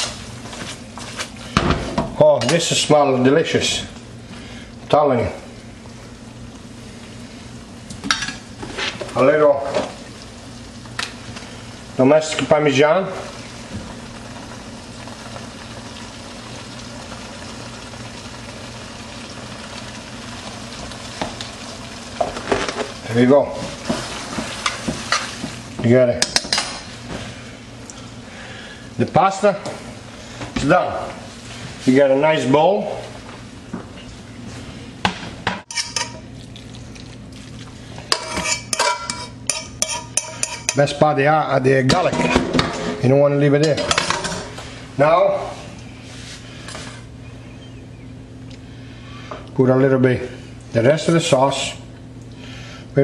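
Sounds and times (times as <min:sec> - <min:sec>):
steady low hum: 0:00.0 - 0:53.0
sauce sizzling in wok: 0:09.8 - 0:25.8
metal utensil scraping wok: 0:38.1 - 0:40.8.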